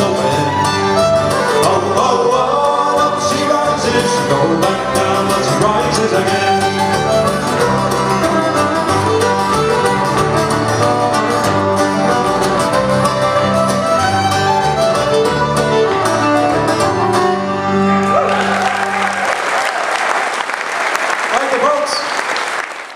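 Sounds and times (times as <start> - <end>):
folk band with fiddle: 0.0 - 19.0
audience applauding: 18.0 - 22.9.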